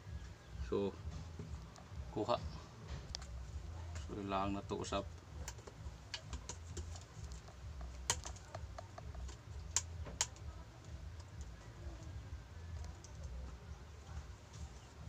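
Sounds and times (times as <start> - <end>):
low steady hum: 0.0 - 15.0
clicks and taps of handling: 5.4 - 11.7.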